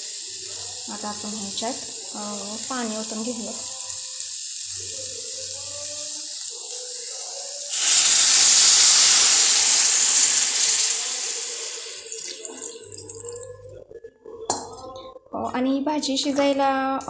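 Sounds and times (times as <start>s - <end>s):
water pouring into hot pan: 0.0s - 13.6s.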